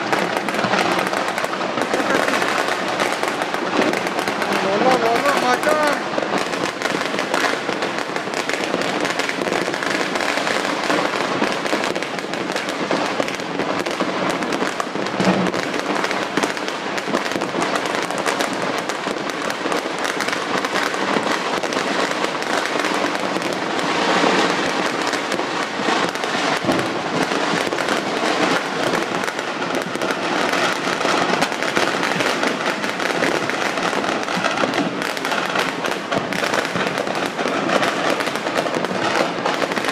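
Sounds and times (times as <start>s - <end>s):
fireworks crackling and banging: 0.0s - 39.9s.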